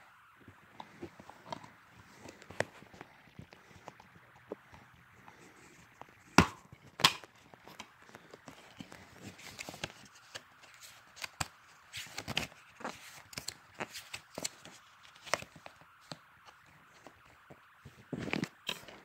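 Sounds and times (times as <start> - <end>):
paper rustling: 6.8 - 19.0.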